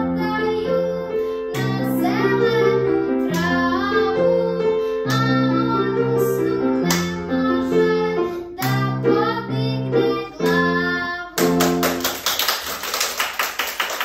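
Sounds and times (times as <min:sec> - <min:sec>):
girl singing: 0:00.0 - 0:12.1
piano accompaniment: 0:00.0 - 0:14.0
children clapping: 0:11.4 - 0:14.0.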